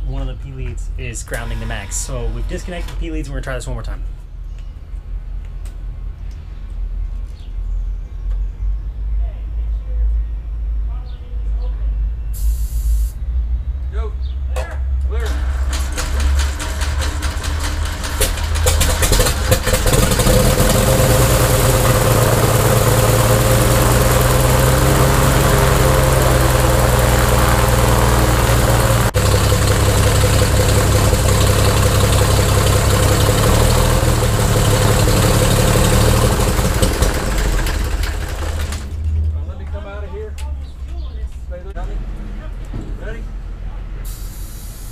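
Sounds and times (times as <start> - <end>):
aircraft engine cranking and idling: 0.0 - 6.4, 15.0 - 39.7, 44.0 - 44.9.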